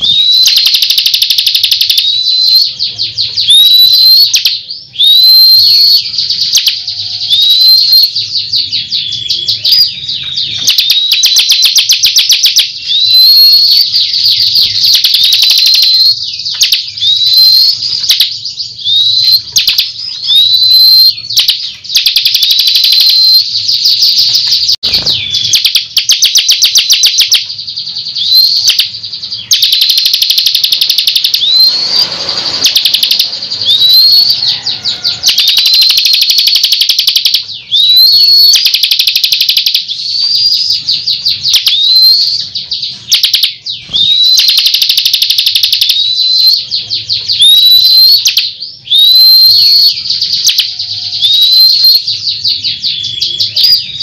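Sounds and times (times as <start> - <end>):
bird rattling trills: 28.2 - 46.2
bird whistling rising notes: 28.2 - 46.6.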